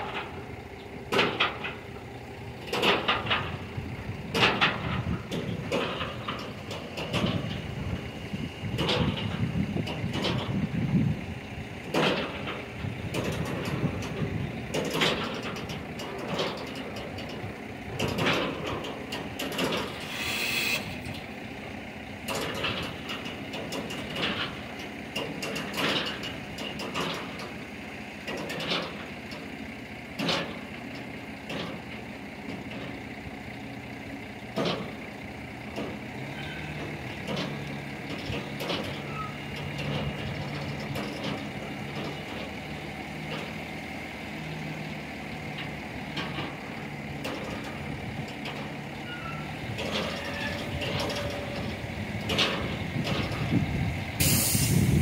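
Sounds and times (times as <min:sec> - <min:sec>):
truck engine running: 0:00.0 - 0:55.0
hiss of air: 0:54.2 - 0:55.0.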